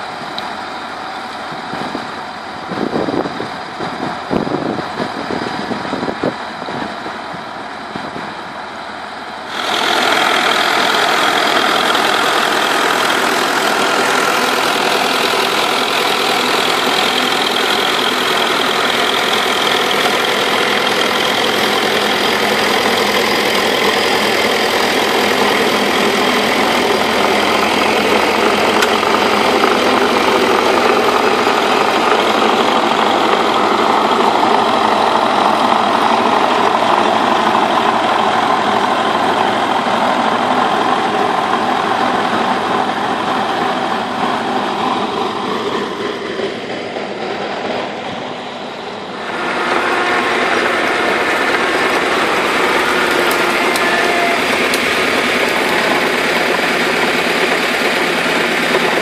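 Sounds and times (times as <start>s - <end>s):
tiller churning soil: 0.0s - 59.0s
tractor diesel engine running: 0.0s - 59.0s.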